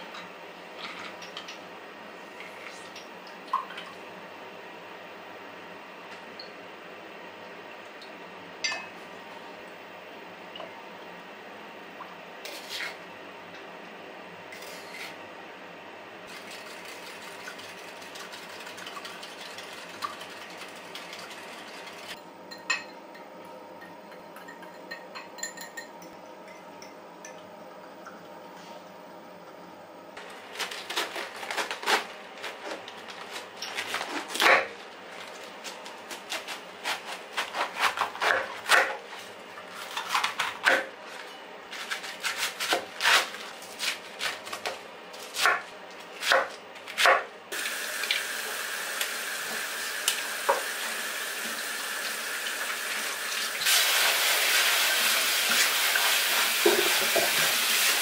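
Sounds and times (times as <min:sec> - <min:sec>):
utensils clinking against glass cup: 0:24.4 - 0:26.1
knife chopping cabbage on board: 0:36.1 - 0:39.1, 0:39.8 - 0:40.9, 0:41.7 - 0:47.3.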